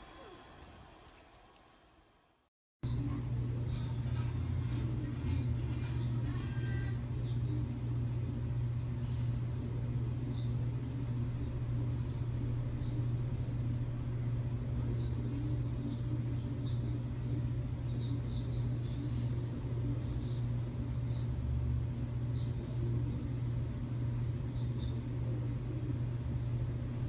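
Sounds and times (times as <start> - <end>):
steady low hum: 0.0 - 27.0
faint high-pitched chirps: 17.8 - 19.6.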